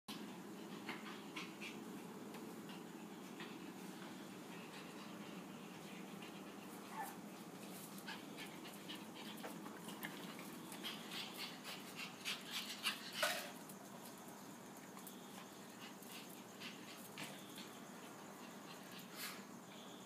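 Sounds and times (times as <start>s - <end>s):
dogs panting and snuffling: 0.1s - 19.9s
dog whimpers: 6.9s - 7.2s.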